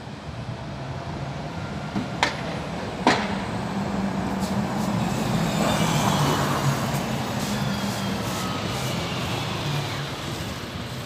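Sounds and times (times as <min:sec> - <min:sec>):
coach engine hum: 0:03.1 - 0:11.0.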